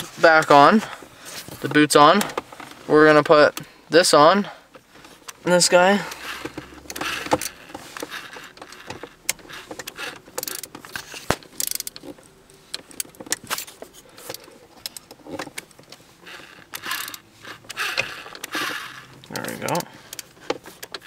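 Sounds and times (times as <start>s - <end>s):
plastic trim clicks and rattles: 6.1s - 21.0s.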